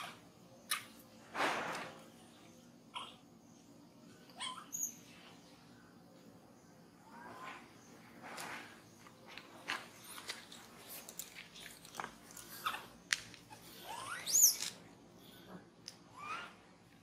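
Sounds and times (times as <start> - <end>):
monkey squealing: 3.0 - 3.2, 4.4 - 5.0, 13.5 - 14.6, 16.1 - 16.6.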